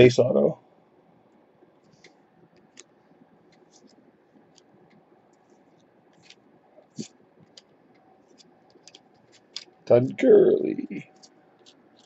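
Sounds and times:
trading cards clicking and scraping: 1.8s - 9.8s, 11.0s - 12.0s.

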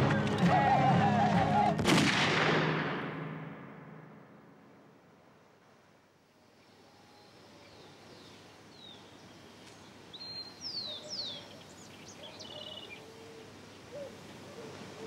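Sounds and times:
outdoor background hiss: 0.0s - 15.0s
birds chirping and trilling: 10.1s - 13.1s.

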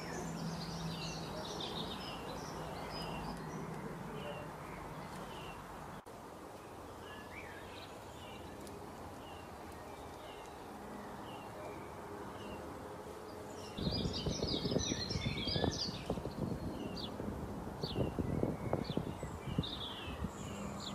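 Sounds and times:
bird chirping: 0.0s - 17.2s, 17.8s - 20.9s
several birds chirping: 0.0s - 20.9s.

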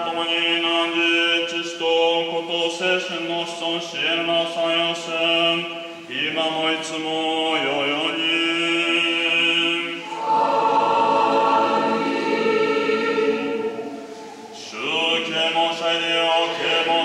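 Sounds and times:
priest chanting: 0.0s - 17.0s
small choir singing: 7.1s - 17.0s.

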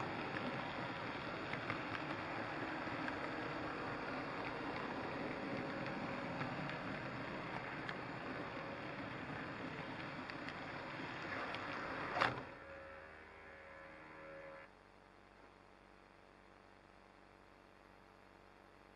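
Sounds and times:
model train rumbling on track: 0.0s - 13.2s
quiet motor hum: 0.0s - 18.6s.

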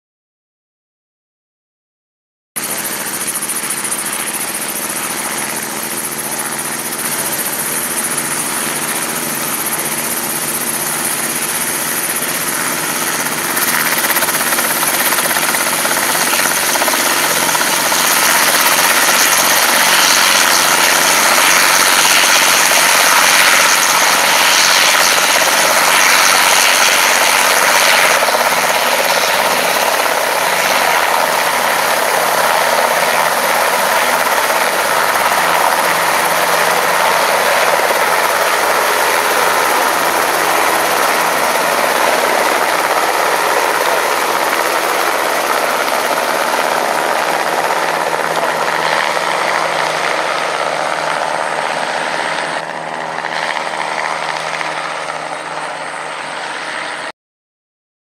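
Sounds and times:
helicopter rotor and engine: 2.6s - 57.2s.

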